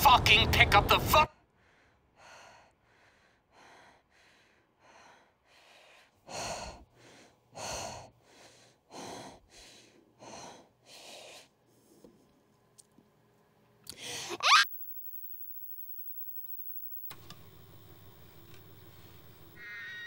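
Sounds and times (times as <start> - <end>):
woman breathing heavily: 1.4 - 12.2, 13.9 - 14.4.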